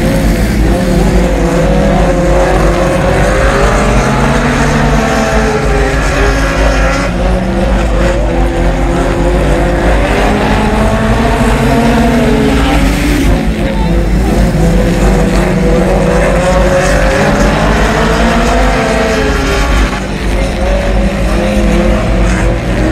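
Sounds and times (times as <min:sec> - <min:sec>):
race car engine revving: 0:00.0 - 0:22.9.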